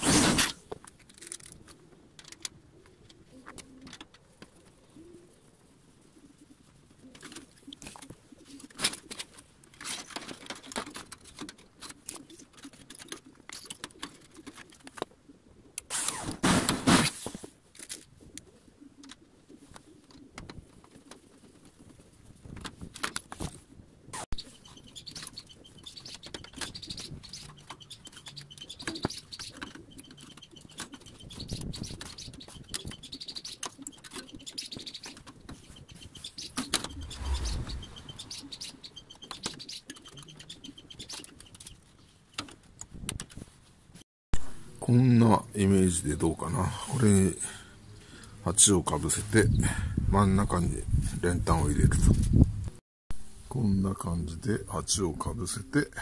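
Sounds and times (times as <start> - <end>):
birds chirping: 24.4 - 42.2.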